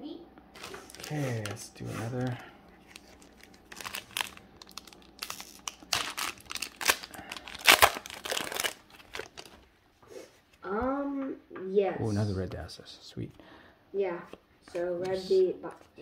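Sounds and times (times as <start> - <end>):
card pack wrapper crackling: 0.6 - 9.6.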